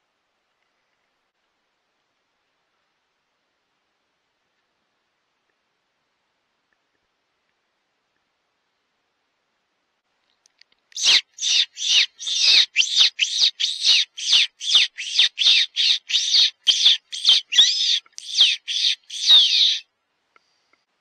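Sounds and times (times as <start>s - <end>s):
whistle giving high squeals: 11.0s - 19.8s.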